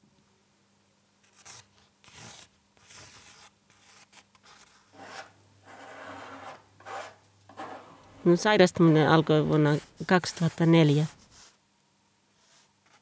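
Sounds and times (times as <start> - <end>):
pencil sketching on paper: 1.4 - 11.6.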